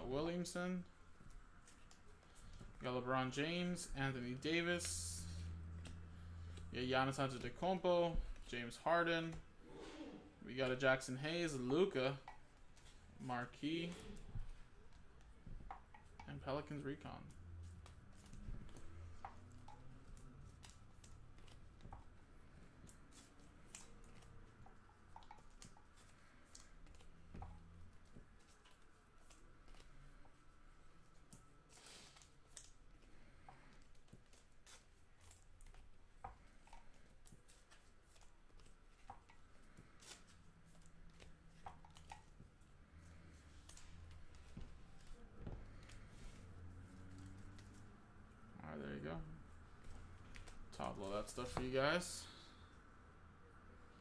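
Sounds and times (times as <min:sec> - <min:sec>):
trading cards handled on table: 0:11.5 - 0:48.4, 0:49.4 - 0:51.9.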